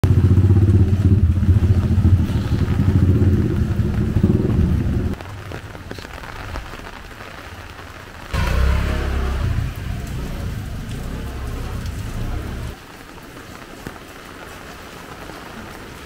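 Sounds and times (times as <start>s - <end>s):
rain and water hiss: 0.1s - 16.0s
engine low pulsing rumble: 8.3s - 12.8s.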